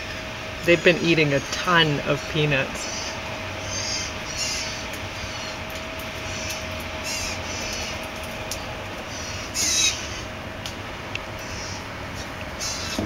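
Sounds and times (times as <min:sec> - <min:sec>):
faint steady hum: 0:00.0 - 0:13.0
fledgling birds calling: 0:00.0 - 0:13.0.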